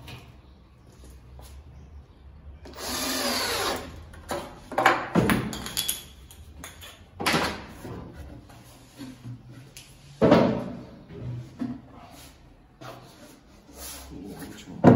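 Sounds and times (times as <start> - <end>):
cordless drill driving screw: 2.7 - 3.9.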